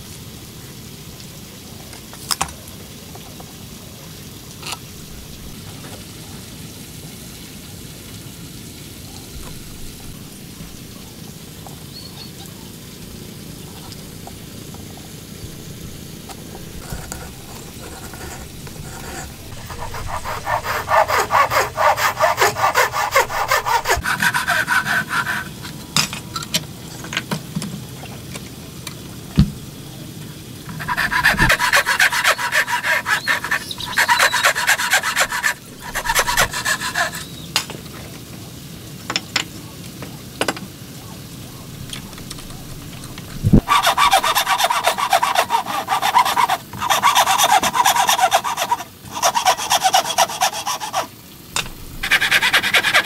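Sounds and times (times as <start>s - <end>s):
handsaw cutting timber: 16.5s - 25.6s, 30.7s - 37.4s, 43.6s - 53.0s.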